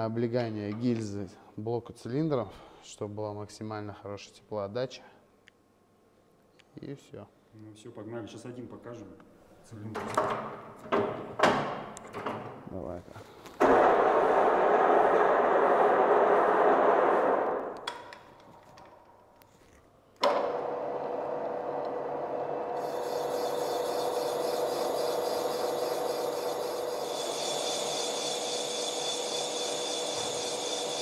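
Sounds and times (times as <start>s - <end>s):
boring machine cutting metal: 20.4s - 31.0s.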